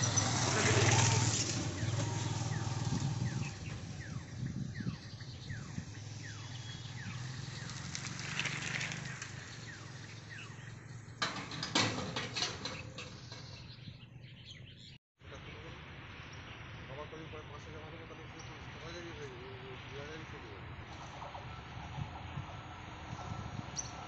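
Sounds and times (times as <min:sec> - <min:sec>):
low engine hum: 0:00.0 - 0:11.7
barrier clicking and knocking: 0:11.1 - 0:13.7.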